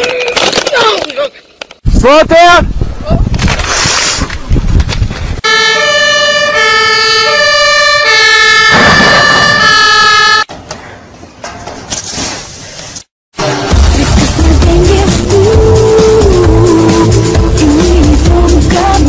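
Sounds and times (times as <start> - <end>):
rustling noise: 3.2 - 5.4, 11.6 - 13.1
two-tone siren: 5.4 - 10.5.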